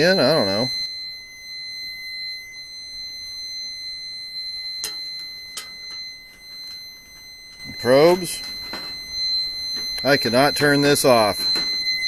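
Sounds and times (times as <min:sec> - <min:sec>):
high-pitched electronic alarm tone: 0:00.0 - 0:12.0.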